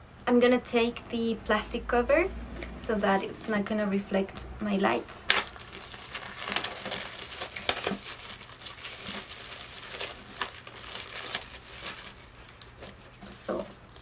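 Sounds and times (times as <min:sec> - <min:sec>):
plastic cover peeling and crinkling: 0:05.2 - 0:14.0.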